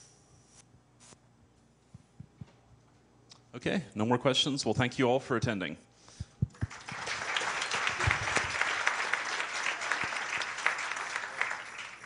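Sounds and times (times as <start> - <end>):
audience applauding: 6.6 - 12.0.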